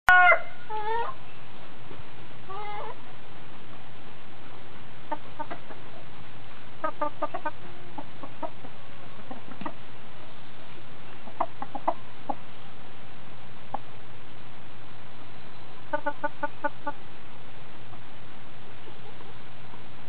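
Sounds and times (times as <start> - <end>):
chickens clucking: 2.4 - 3.2, 5.0 - 12.7, 13.6 - 14.1, 15.6 - 17.1.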